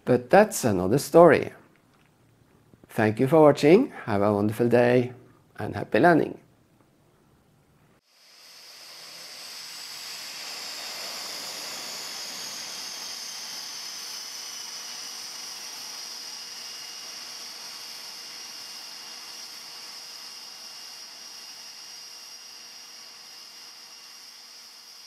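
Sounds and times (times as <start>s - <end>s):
high-pitched hiss and whine: 8.1s - 25.0s.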